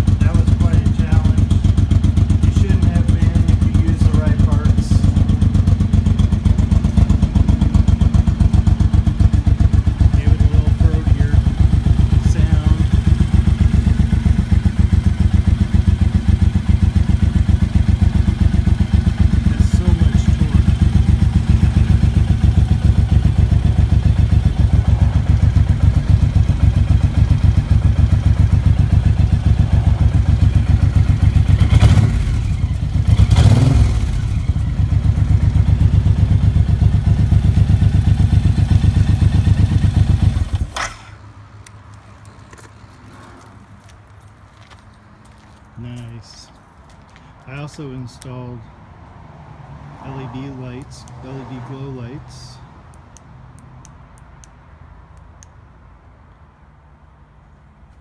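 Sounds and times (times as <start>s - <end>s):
motorcycle engine revving: 0.0s - 41.3s
motorcycle engine idling: 0.0s - 41.4s.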